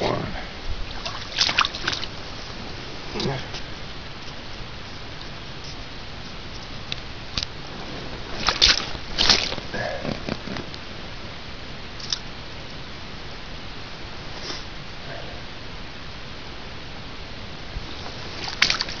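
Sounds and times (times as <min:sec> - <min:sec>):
water splashes and clicks: 0:01.0 - 0:02.1, 0:08.4 - 0:09.7, 0:12.0 - 0:12.2, 0:18.4 - 0:19.0
water trickling over gravel: 0:17.9 - 0:19.0.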